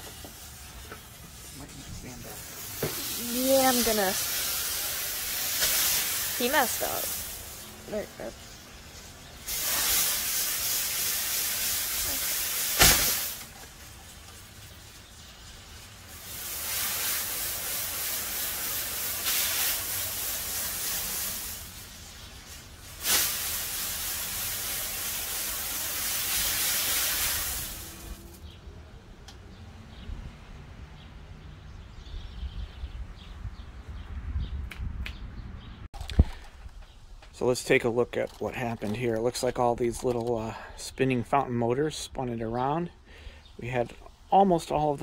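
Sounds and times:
firework fountain sizzling: 0.0 - 28.4
sharp firework pop: 12.6 - 13.5, 23.0 - 23.5.

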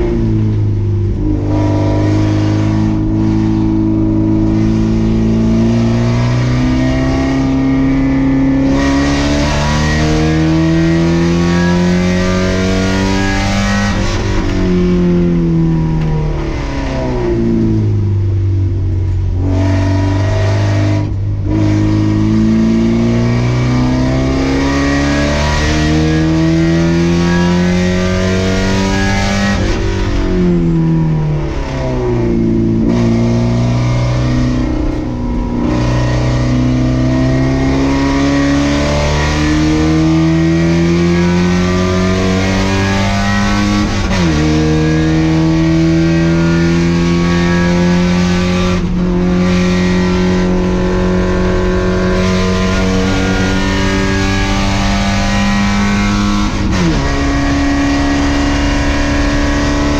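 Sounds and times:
race car engine accelerating: 0.0 - 59.9.

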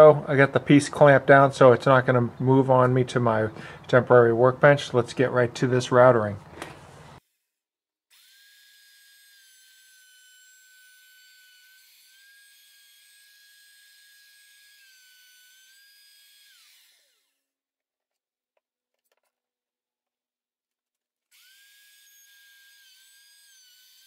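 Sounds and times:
electric router whining: 21.4 - 24.0.

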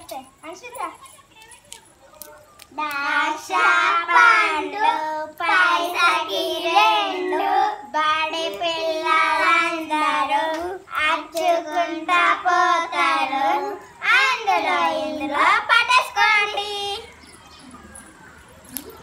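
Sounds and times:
girls singing game song: 2.7 - 17.2.

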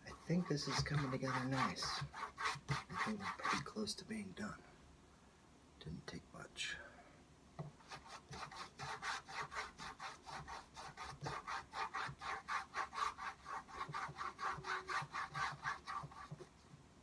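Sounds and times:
paintbrush scrubbing canvas: 0.1 - 3.8, 7.8 - 16.7.

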